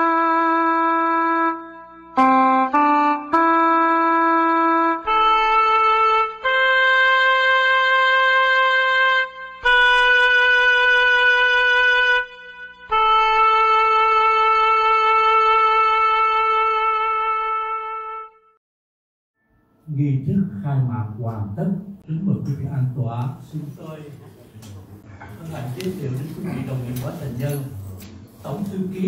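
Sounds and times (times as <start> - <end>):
wind instrument playing long notes: 0.0 - 18.6.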